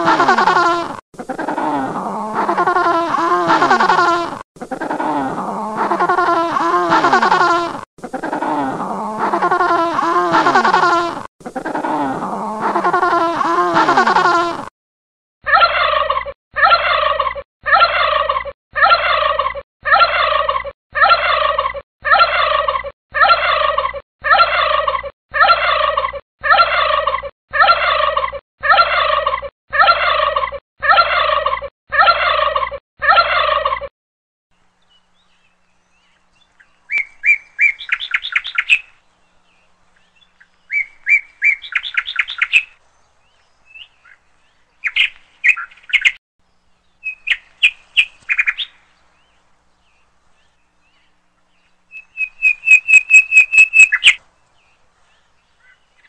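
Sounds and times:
small bird chirping trills: 34.8s - 56.0s.

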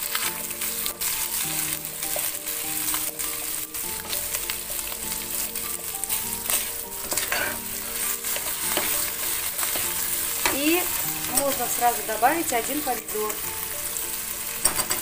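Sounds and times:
meat and onion sizzling in oil: 0.0s - 15.0s
wooden spatula scraping pan: 6.1s - 13.1s.

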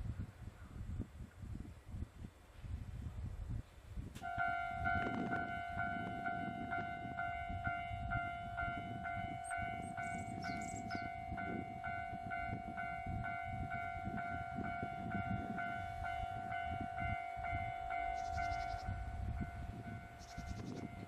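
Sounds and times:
electric train rumbling: 1.7s - 21.0s
level crossing bell ringing: 4.2s - 20.2s.

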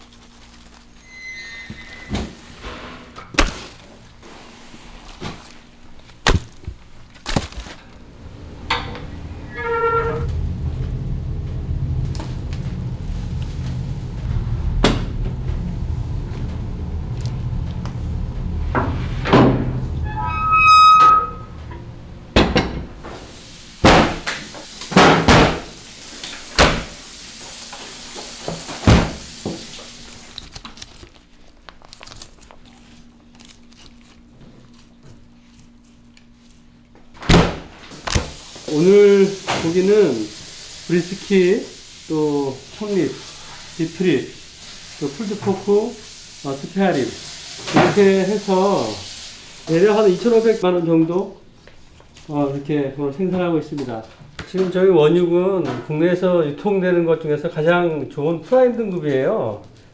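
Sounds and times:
low rumble: 7.8s - 23.8s
knocks and thuds: 14.3s - 16.1s.

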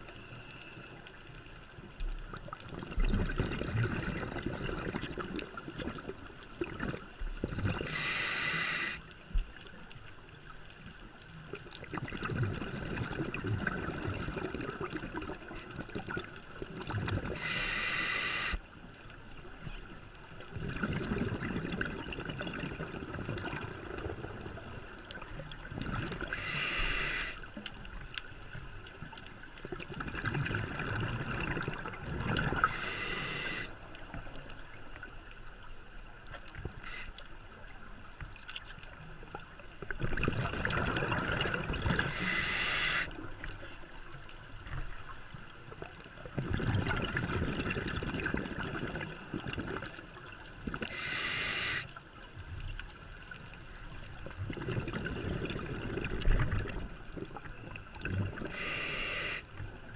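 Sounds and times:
exhaled bubbles rushing: 2.6s - 8.0s, 11.9s - 17.4s, 20.5s - 24.8s, 29.8s - 32.8s, 39.9s - 42.3s, 46.4s - 50.0s, 54.3s - 58.6s
water and regulator sounds: 12.2s - 18.7s.

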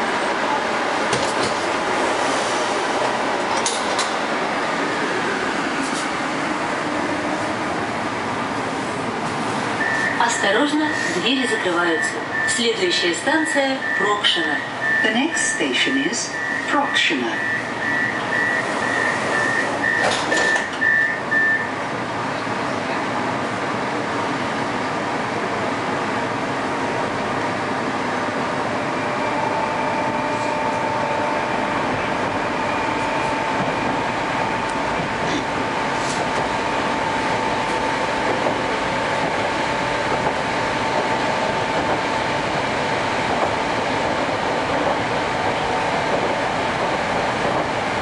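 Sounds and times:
rumble of wheels on rail: 0.0s - 48.0s
train car hum: 0.0s - 48.0s
high warning beeps: 13.7s - 21.7s
sliding doors closing: 19.0s - 21.0s
steady high tone: 28.9s - 38.8s.

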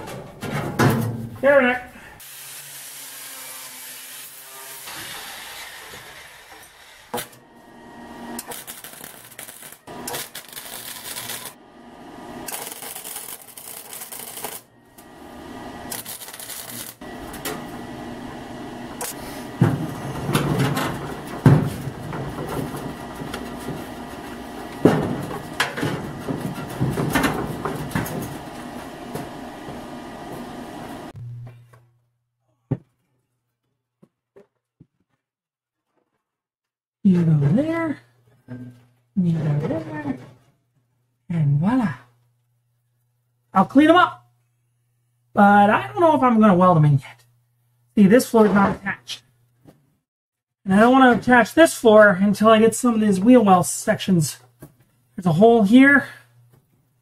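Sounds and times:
angle grinder on sheet steel: 2.2s - 11.6s
welder crackling: 8.0s - 31.2s.

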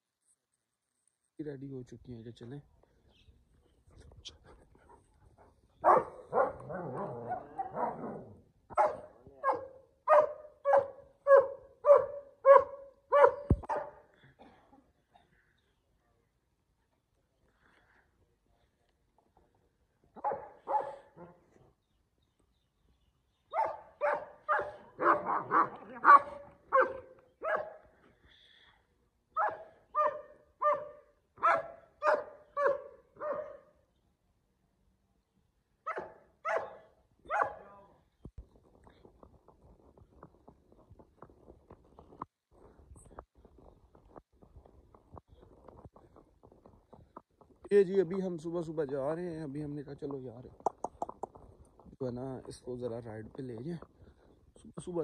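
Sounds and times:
dog barking and yelping: 5.8s - 14.0s, 20.2s - 21.3s, 23.5s - 27.8s, 29.3s - 33.7s, 35.9s - 37.7s.

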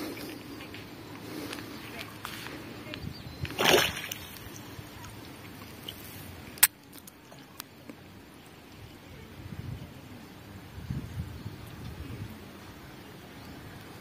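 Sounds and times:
water splash: 3.5s - 4.4s.

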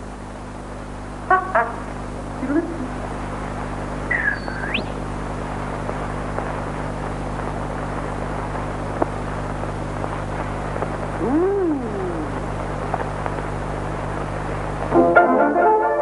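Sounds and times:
film soundtrack hiss and hum: 0.0s - 16.0s
low tone sliding up and down: 11.2s - 12.5s.

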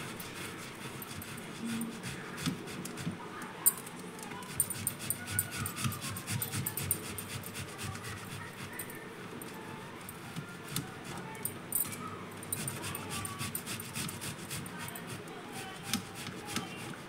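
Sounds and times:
potato scraping on grater: 0.0s - 3.2s, 4.4s - 8.8s, 12.6s - 17.0s.

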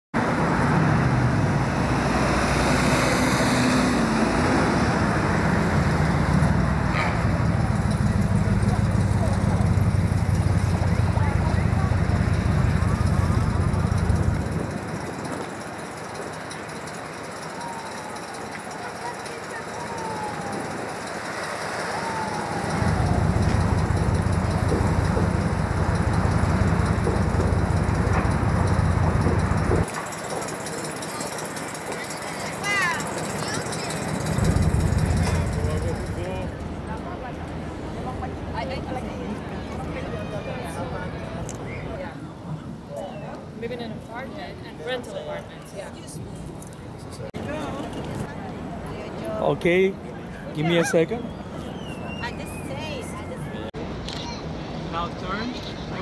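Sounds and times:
city traffic rumble: 0.2s - 56.0s
faint engine hum: 0.4s - 43.6s.

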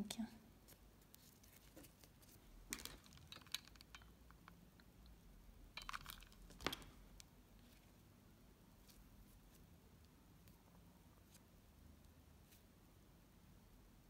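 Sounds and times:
soft clicks and rustles: 0.6s - 5.2s.

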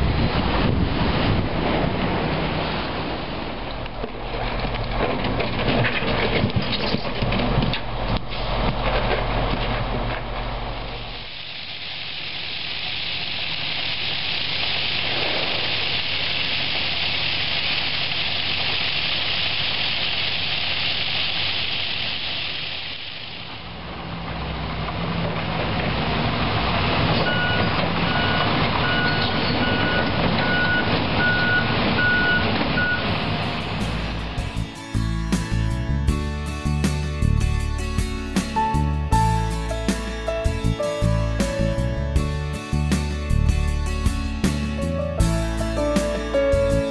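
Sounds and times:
heavy diesel machine running: 0.0s - 46.9s
gravel pouring off conveyor: 11.1s - 23.5s
backup alarm beeping: 27.3s - 33.5s.

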